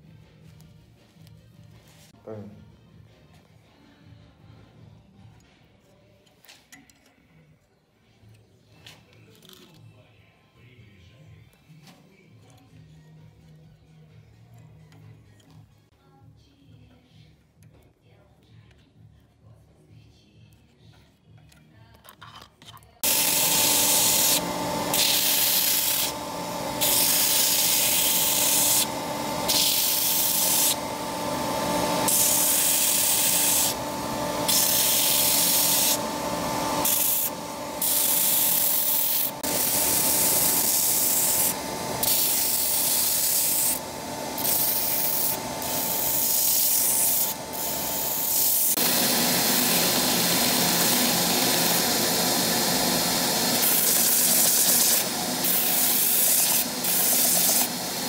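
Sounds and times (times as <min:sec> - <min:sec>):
grinding hiss of sanding: 0:23.0 - 0:26.2, 0:26.8 - 0:30.8, 0:32.0 - 0:33.8, 0:36.8 - 0:43.8, 0:53.6 - 0:57.8
belt grinder motor hum: 0:23.0 - 0:58.0.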